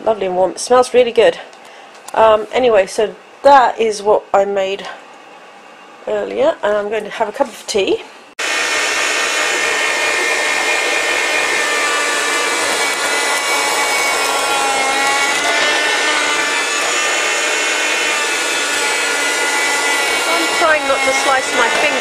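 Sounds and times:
electric bread slicer sawing bread: 8.4s - 22.0s.

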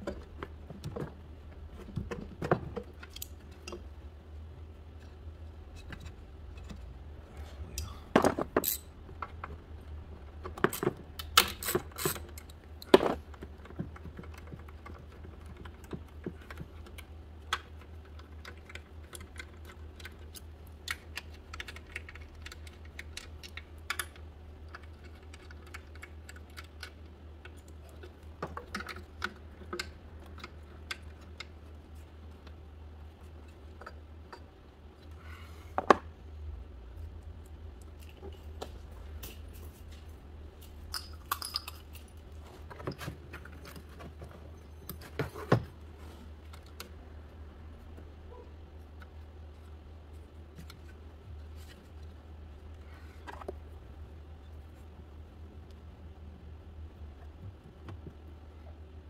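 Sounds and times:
low hum: 0.0s - 11.4s, 30.0s - 59.0s.

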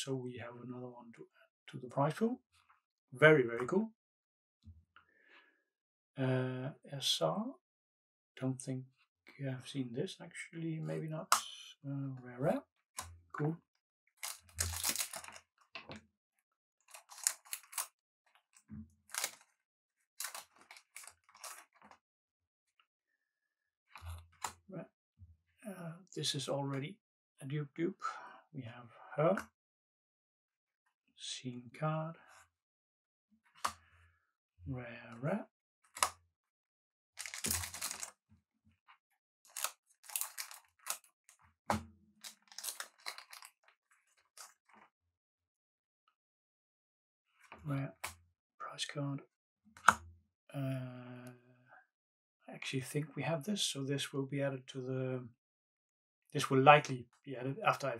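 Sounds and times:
cards swishing and rustling: 14.2s - 15.4s
cards rustling and clicking: 14.2s - 15.5s, 16.9s - 17.9s, 19.1s - 19.6s, 20.2s - 22.0s, 37.2s - 38.1s, 39.5s - 41.1s, 42.2s - 43.6s.

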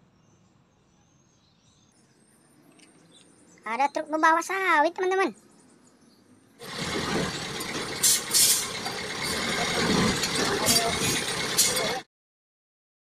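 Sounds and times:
truck engine running: 6.6s - 12.0s.

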